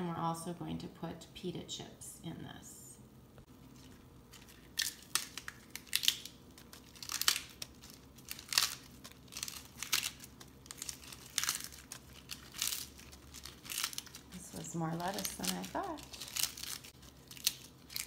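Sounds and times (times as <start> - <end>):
lettuce leaves ripping: 3.7 - 18.0.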